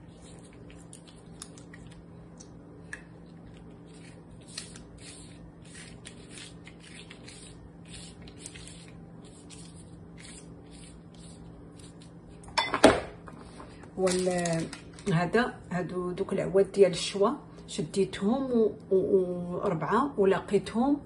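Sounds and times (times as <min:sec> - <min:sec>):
pastry brush swishing: 0:03.9 - 0:12.2.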